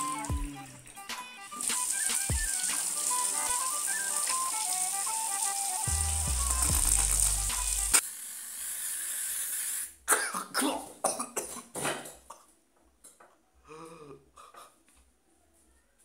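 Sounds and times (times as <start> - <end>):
background music: 0.0 - 8.0
kitchen tap running: 0.0 - 8.5
aerosol can hissing: 1.5 - 10.0
loud coughing and gagging: 10.1 - 12.5.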